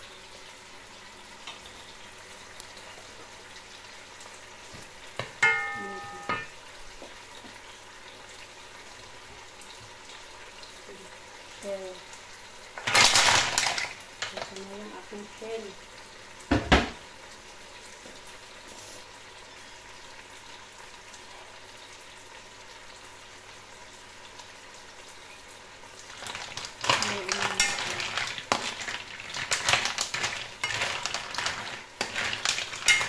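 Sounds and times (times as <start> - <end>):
mussels sizzling in a wok: 0.0 - 33.0
shells clattering and scraping: 26.9 - 33.0.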